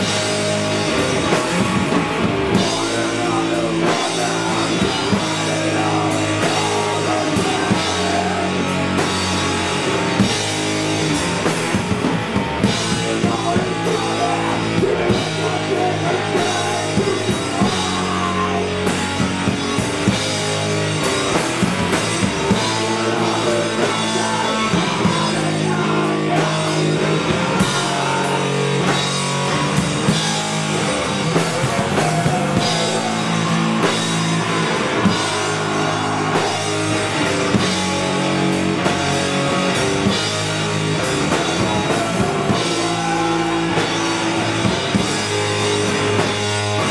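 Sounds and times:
drum kit with cymbal hits: 0:00.0 - 0:46.9
heavy electric guitar: 0:00.0 - 0:46.9.

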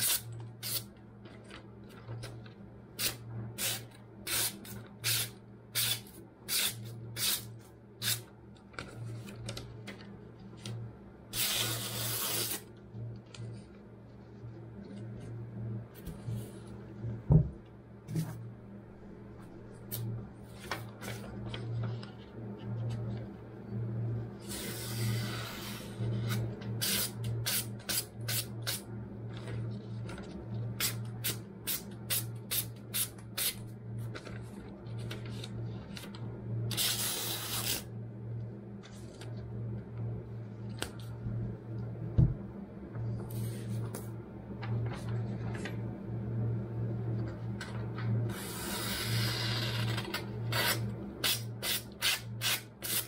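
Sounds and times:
steady low hum: 0:00.0 - 0:53.0
paper rustling: 0:20.5 - 0:22.3.

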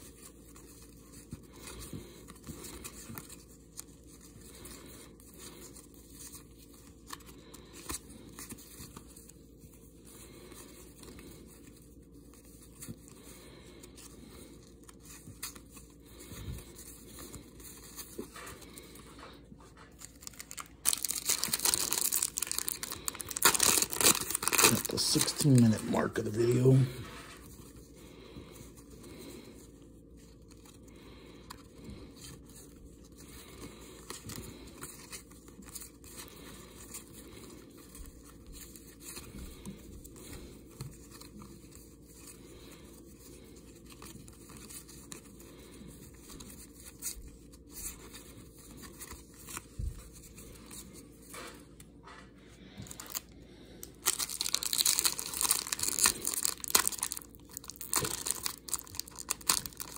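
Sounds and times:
plastic wrapper crinkling and tearing: 0:19.7 - 0:27.0, 0:52.7 - 0:59.9.

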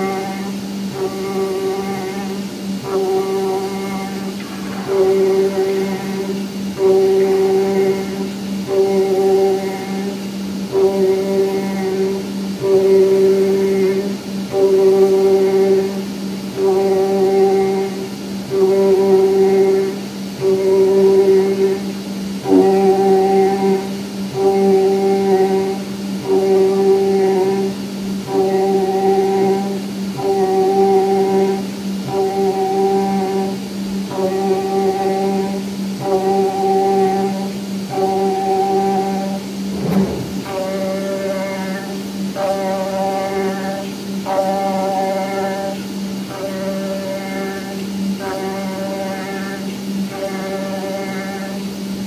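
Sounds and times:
pulsing high tone: 0:00.0 - 0:10.1, 0:22.4 - 0:25.4
cutting machine spindle humming: 0:00.0 - 0:52.0.

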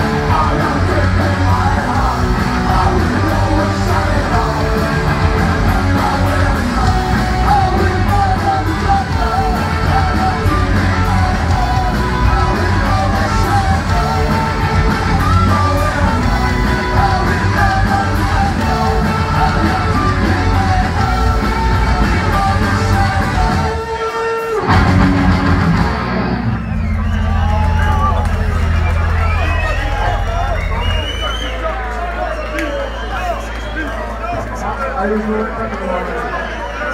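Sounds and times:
sung and shouted vocals: 0:00.0 - 0:25.1
punk rock band playing live: 0:00.0 - 0:31.4.

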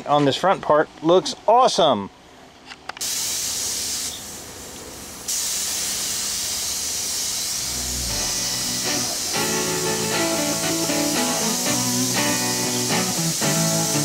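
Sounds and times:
paint spray gun hissing: 0:03.0 - 0:14.0.

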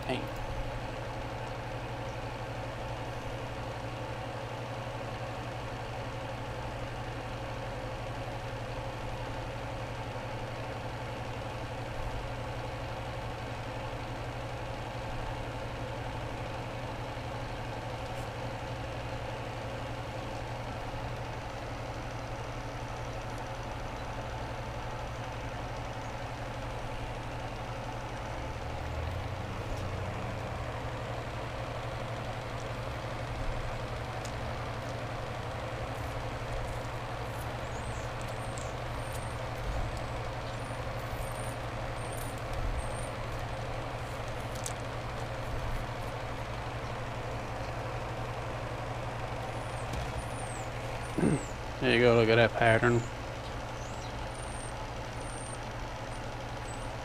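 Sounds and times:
air compressor humming: 0:20.1 - 0:56.7.

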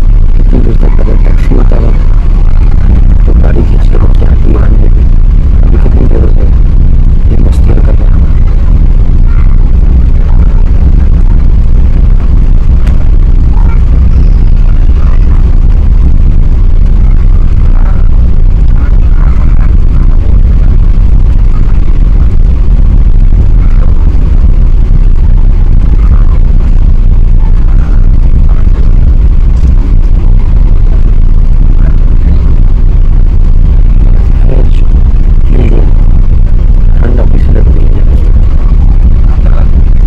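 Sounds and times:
jet engine cabin rumble: 0:00.0 - 0:40.0.

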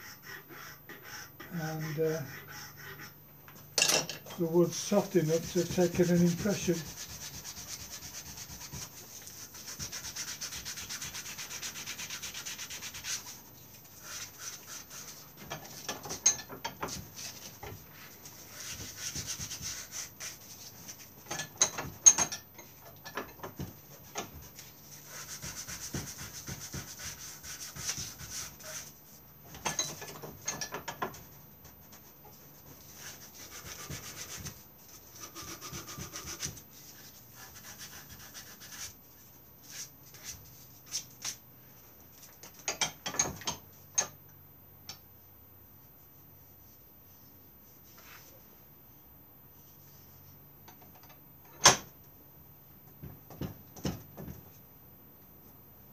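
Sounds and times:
hand sanding wood: 0:00.0 - 0:03.2, 0:04.4 - 0:15.9, 0:16.8 - 0:21.1, 0:24.4 - 0:29.0, 0:32.6 - 0:39.0.

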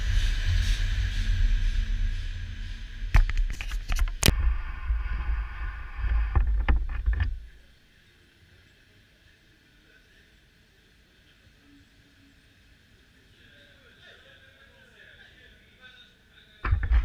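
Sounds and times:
train rumble with hiss: 0:00.0 - 0:03.6.

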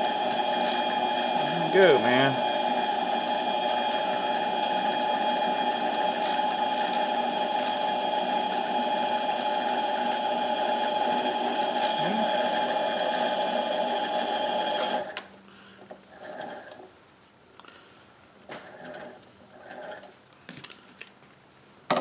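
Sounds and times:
lathe motor whining: 0:00.0 - 0:15.2.

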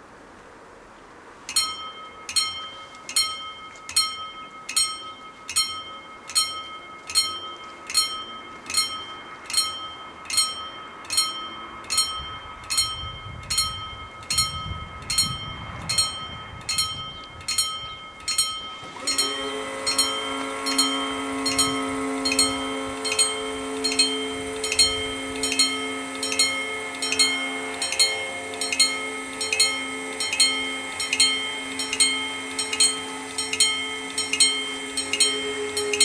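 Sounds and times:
steady multi-tone hum: 0:00.0 - 0:36.0
level crossing bell ringing: 0:01.5 - 0:36.0.

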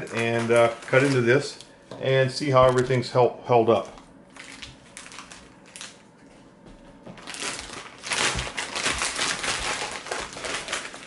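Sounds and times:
plastic bag crinkling: 0:00.0 - 0:01.6, 0:03.8 - 0:06.0, 0:07.1 - 0:11.0.

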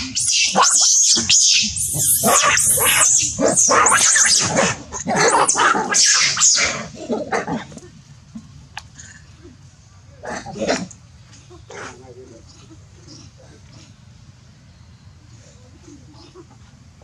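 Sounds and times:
monkeys screaming: 0:00.0 - 0:07.0.

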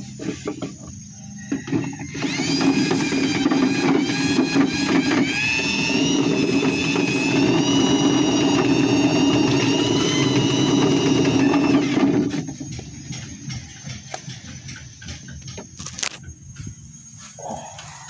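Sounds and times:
electric drill motor whining: 0:01.6 - 0:13.1.

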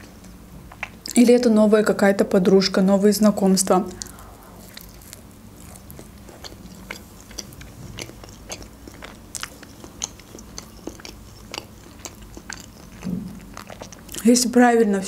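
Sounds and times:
wet mouth clicks: 0:03.9 - 0:14.2
toast crunching while chewing: 0:04.0 - 0:14.3.

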